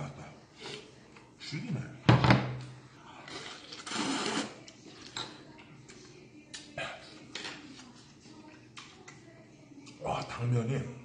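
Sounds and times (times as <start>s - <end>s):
noodle slurping: 3.3s - 4.7s.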